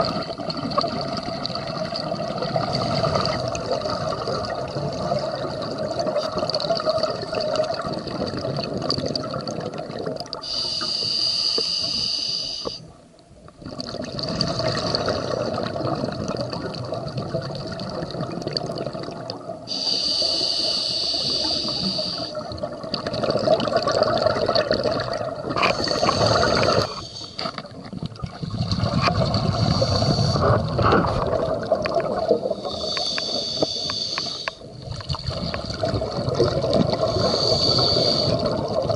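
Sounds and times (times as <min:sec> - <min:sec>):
exhaled air bubbling: 0:00.0 - 0:38.9
regulator hissing inhalations: 0:10.4 - 0:12.9, 0:19.7 - 0:22.4, 0:25.6 - 0:27.6, 0:29.5 - 0:30.5, 0:32.6 - 0:34.7, 0:37.0 - 0:38.5.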